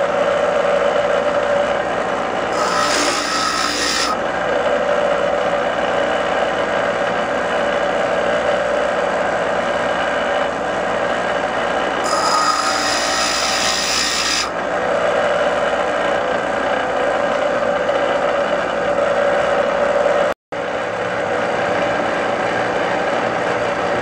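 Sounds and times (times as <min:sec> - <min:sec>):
bench grinder running: 0:00.0 - 0:20.3.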